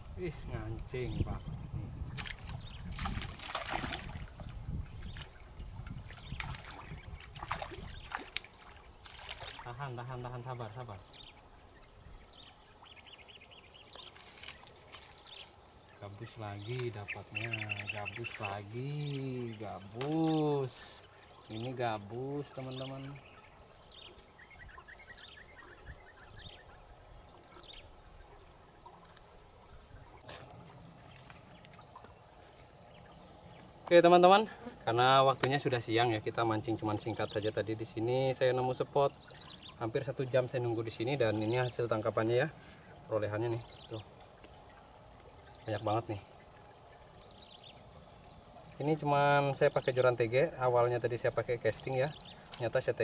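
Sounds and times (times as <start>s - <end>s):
birds chirping: 0.0s - 53.0s
high insect drone: 0.0s - 53.0s
fish splashing at surface: 2.2s - 4.3s.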